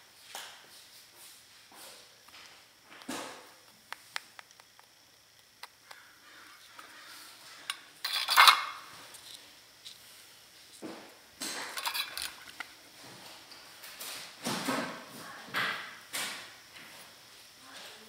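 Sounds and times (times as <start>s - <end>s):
metal clatter: 8.0s - 8.8s, 11.6s - 12.6s.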